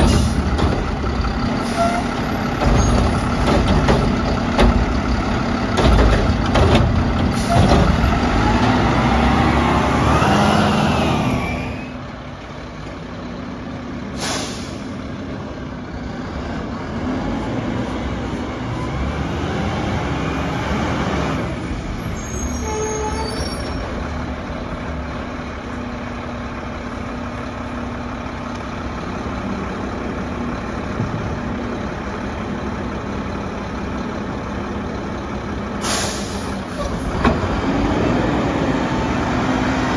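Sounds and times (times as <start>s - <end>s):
garbage truck engine: 0.0s - 39.9s
air brake hiss: 14.2s - 15.0s, 35.8s - 37.0s.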